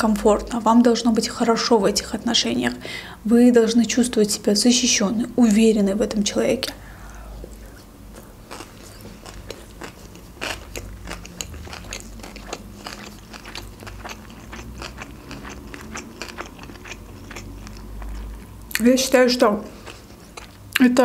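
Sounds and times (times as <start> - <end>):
chewing with mouth clicks: 7.5 - 21.0.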